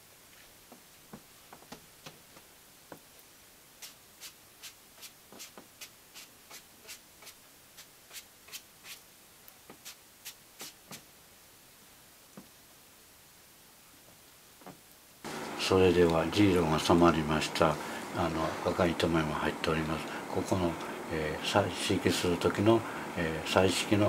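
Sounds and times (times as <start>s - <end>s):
brush swishing over cloth: 3.8s - 9.1s, 9.7s - 11.1s.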